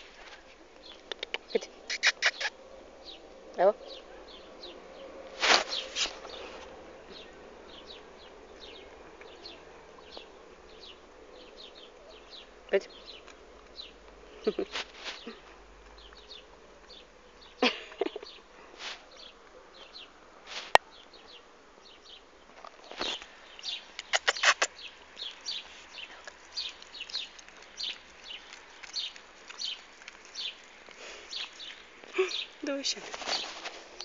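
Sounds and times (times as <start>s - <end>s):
puppy licking: 0.9s - 2.6s, 23.9s - 33.2s.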